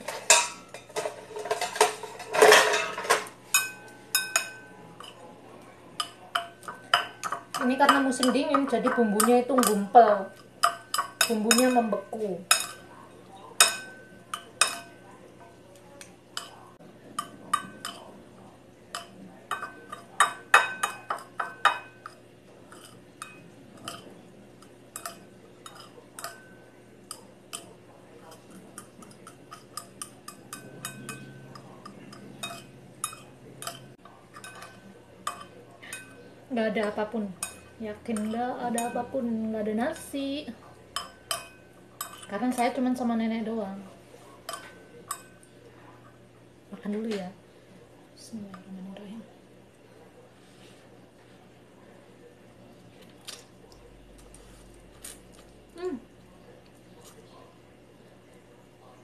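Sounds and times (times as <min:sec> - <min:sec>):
utensils clinking against bowl: 0:00.0 - 0:43.1, 0:44.3 - 0:46.2.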